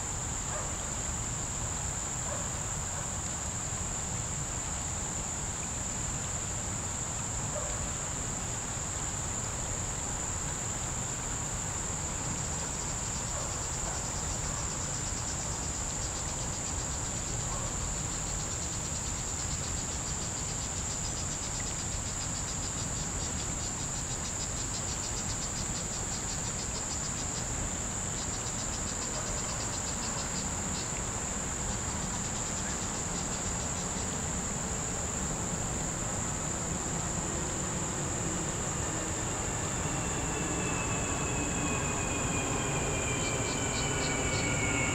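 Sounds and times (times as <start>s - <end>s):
insect chorus drone: 0.0s - 44.9s
insect pulsing trill: 35.0s - 44.9s.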